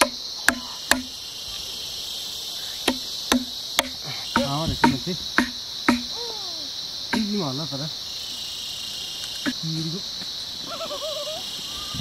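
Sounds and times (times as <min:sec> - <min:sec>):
insect chorus: 0:00.0 - 0:12.0
hammer striking chisel: 0:02.9 - 0:06.1.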